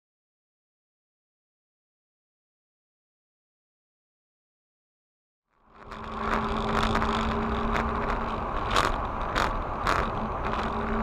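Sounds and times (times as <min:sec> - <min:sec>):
car road and engine noise: 0:05.5 - 0:11.0.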